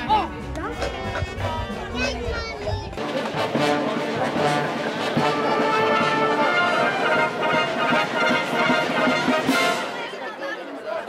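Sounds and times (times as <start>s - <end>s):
military brass band playing: 3.0s - 10.4s.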